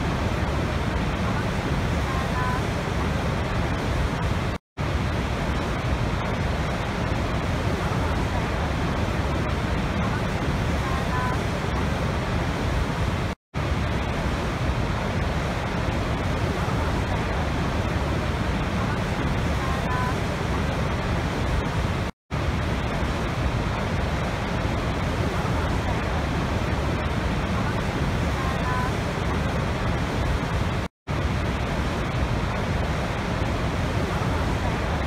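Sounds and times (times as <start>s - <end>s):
waterfall rushing: 0.0s - 35.0s.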